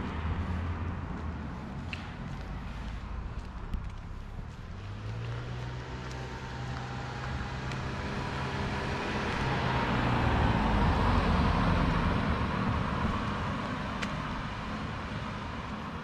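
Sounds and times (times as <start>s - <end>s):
car passing by: 0.0s - 16.0s.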